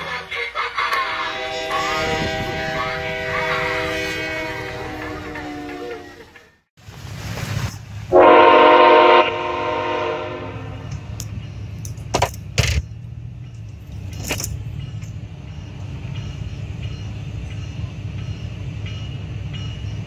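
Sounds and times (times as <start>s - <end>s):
locomotive air horn blast: 1.0s - 6.4s, 8.1s - 10.9s.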